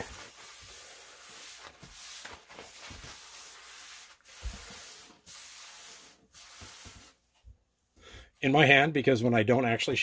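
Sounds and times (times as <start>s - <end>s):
paper towel wiping wooden table: 0.0s - 7.2s.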